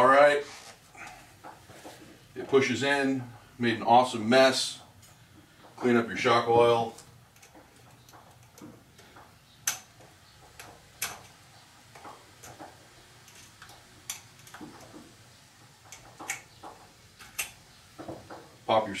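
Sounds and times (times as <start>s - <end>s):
metallic clicks and ticks: 6.9s - 15.0s, 15.8s - 17.6s.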